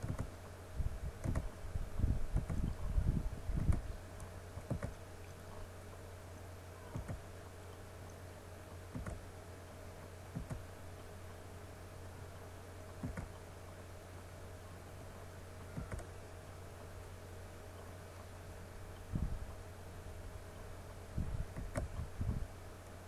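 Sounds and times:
steady low hum: 0.0 - 23.0
computer mouse clicks: 1.2 - 1.5.

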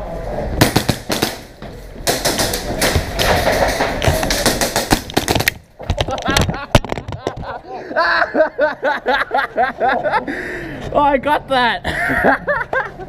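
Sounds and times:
pellet impacts: 0.6 - 7.5.

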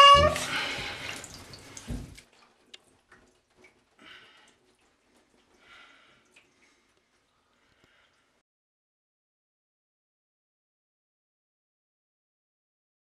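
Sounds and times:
water dripping and splashing in bathtub: 0.0 - 8.4
thump: 1.9 - 2.2.

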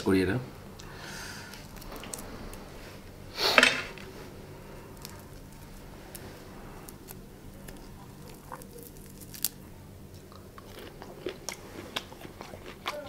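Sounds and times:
air conditioner humming: 0.0 - 13.0
prawn shell crackling and tearing: 4.9 - 9.6.

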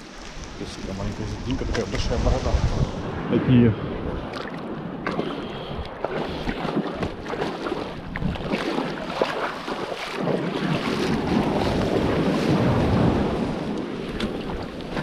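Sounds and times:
wind rumbling on microphone: 0.0 - 15.0
water sloshing around wading legs: 4.2 - 15.0.

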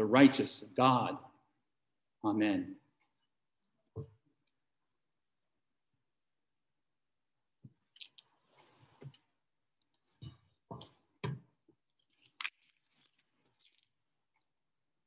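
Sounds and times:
rustling: 12.0 - 14.4.

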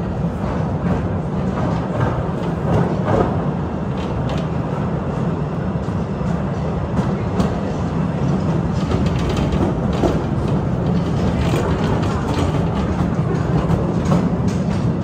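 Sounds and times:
train rumbling on track: 0.0 - 15.0
wheel clicks on rails: 8.3 - 15.0.

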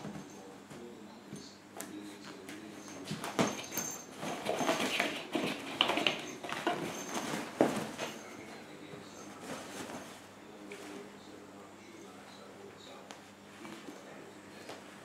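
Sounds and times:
cloth rustling: 9.1 - 11.0.

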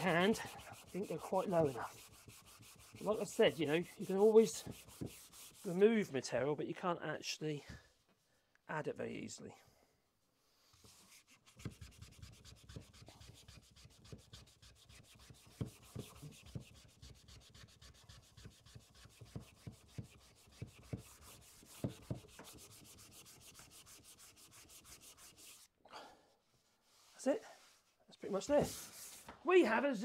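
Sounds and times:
hand sanding wood: 0.0 - 5.9, 10.8 - 25.7, 28.4 - 29.3.

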